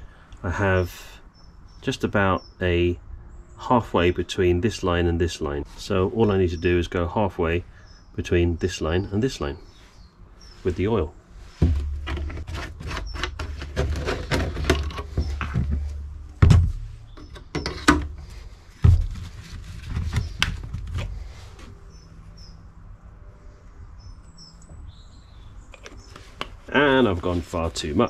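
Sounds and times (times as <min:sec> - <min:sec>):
birds chirping faintly: 0:00.0 - 0:28.0
plastic containers clicking and knocking: 0:11.6 - 0:18.2.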